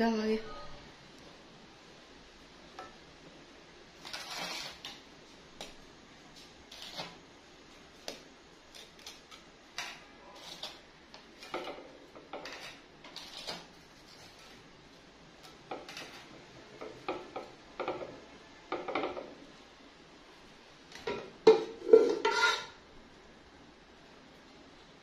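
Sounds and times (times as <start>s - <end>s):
rusks scraping on glass: 4.0s - 5.0s, 6.7s - 7.2s, 8.7s - 10.8s, 12.4s - 14.6s, 21.8s - 22.8s.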